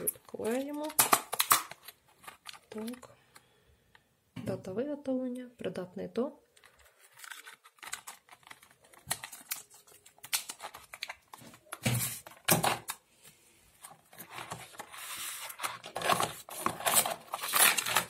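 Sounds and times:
plastic clicks and crinkling: 0:00.0 - 0:04.0, 0:06.5 - 0:13.0.

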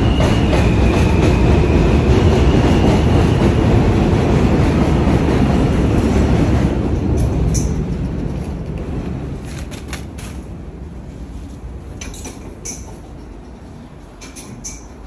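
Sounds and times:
subway train rumbling on tracks: 0:00.0 - 0:15.0.

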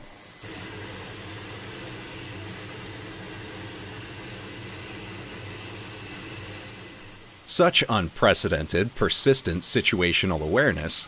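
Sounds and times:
faint high whine: 0:00.0 - 0:11.0
helicopter turbine and rotor noise: 0:00.3 - 0:07.5.

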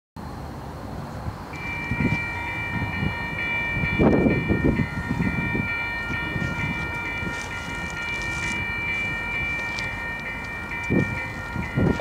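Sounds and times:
railroad bell ringing: 0:01.5 - 0:12.0.

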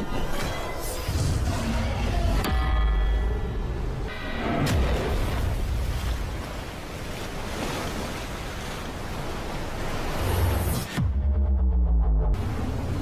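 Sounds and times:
dramatic music: 0:01.1 - 0:06.3, 0:10.5 - 0:12.4
churning water: 0:04.4 - 0:11.0.

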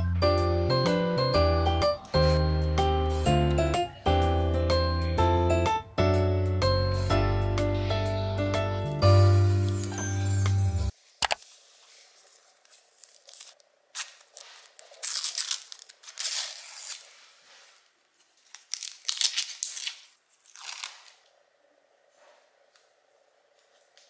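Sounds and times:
paper backing crinkling rips: 0:11.4 - 0:17.5, 0:18.4 - 0:21.3.

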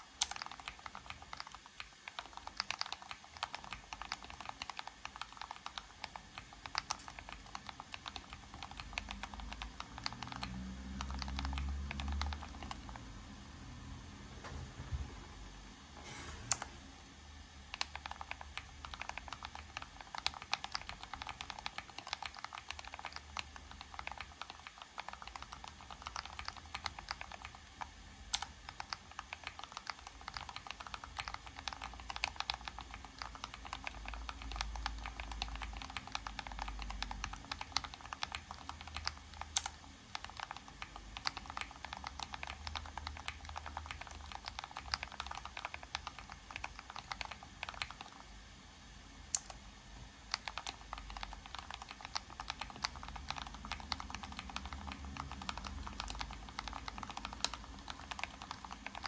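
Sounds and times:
fast typing on mechanical keyboard: 0:00.0 - 0:13.1, 0:17.7 - 0:48.3, 0:50.3 - 0:59.0.

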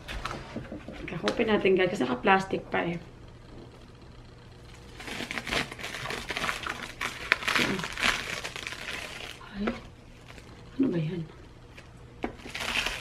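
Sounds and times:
plastic wrapping crinkling: 0:04.7 - 0:10.6, 0:12.2 - 0:13.0.

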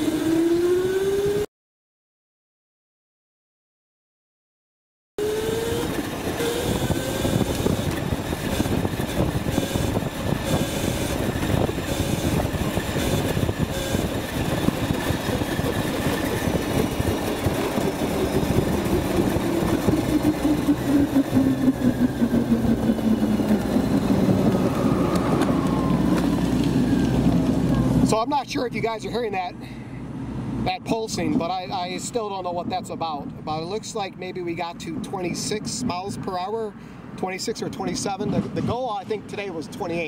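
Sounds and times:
electric motor whining: 0:05.2 - 0:28.0
tyre and wind rumble: 0:05.6 - 0:29.3, 0:37.8 - 0:40.0.

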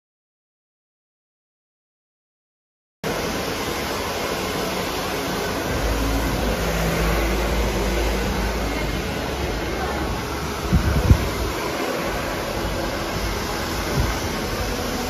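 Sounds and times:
steady rushing blowing noise: 0:03.1 - 0:15.0
low hum: 0:05.5 - 0:15.0.

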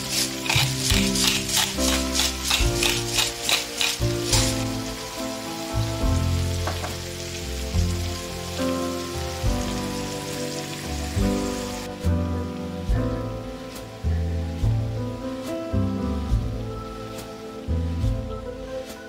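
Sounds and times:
rhythmic scratchy pulsing: 0:00.0 - 0:05.1
vegetables sizzling in a frying pan: 0:00.0 - 0:12.0
background music with steady beat: 0:00.0 - 0:19.0.

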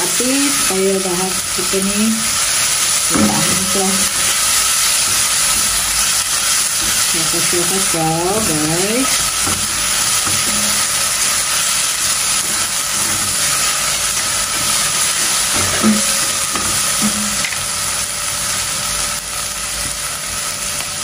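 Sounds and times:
aromatics sizzling in hot oil: 0:00.0 - 0:21.0
spatula stirring in a pot: 0:02.4 - 0:17.6.

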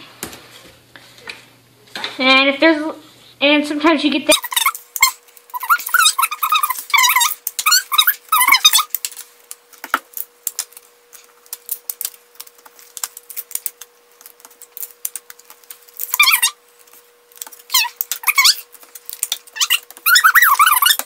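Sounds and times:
high wavering squeaks: 0:04.3 - 0:09.0, 0:16.0 - 0:16.6, 0:17.6 - 0:18.8, 0:19.5 - 0:21.0
paper and tape crackling: 0:04.4 - 0:21.0.

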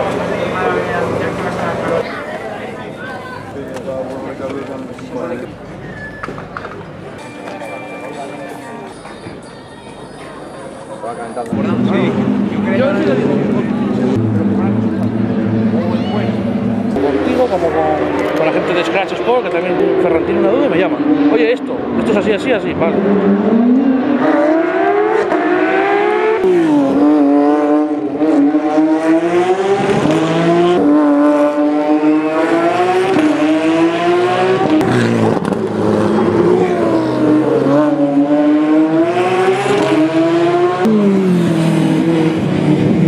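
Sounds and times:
car engine revving hard: 0:22.7 - 0:43.0.

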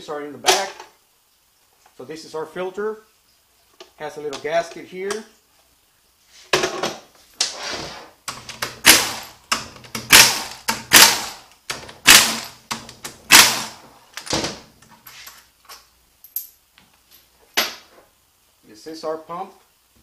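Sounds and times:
pneumatic tool whirring: 0:08.8 - 0:09.3, 0:10.0 - 0:11.4, 0:12.0 - 0:12.6, 0:13.3 - 0:13.8.

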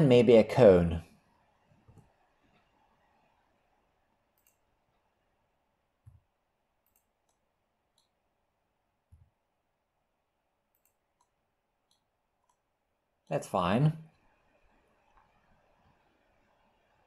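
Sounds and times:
mouse and keyboard clicks: 0:06.8 - 0:08.2.

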